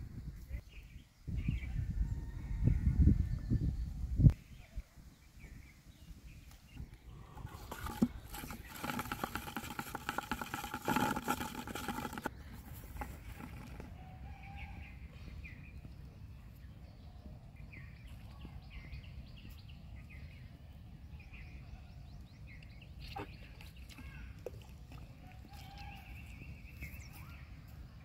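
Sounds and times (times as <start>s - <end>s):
low wind rumble: 0.0s - 23.0s
rustling handling noise: 7.4s - 13.9s.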